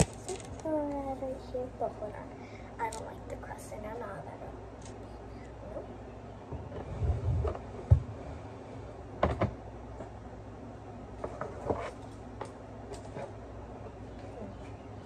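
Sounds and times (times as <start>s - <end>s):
low rumble: 4.8s - 9.2s.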